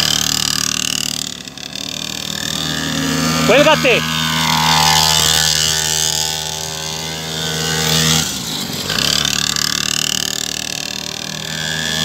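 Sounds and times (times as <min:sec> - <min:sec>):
small dirt bike engine running: 0:00.0 - 0:12.0.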